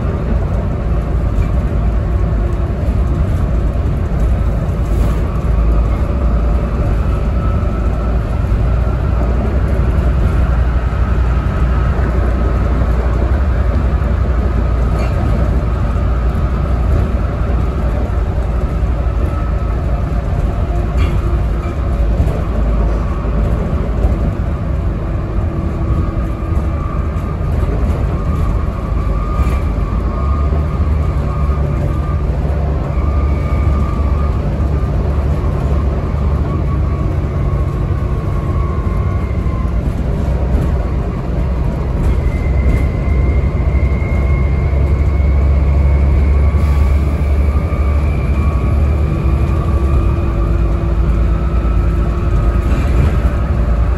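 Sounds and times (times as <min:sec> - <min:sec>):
bus diesel engine rumbling: 0:00.0 - 0:53.9
drivetrain whine: 0:00.0 - 0:53.9.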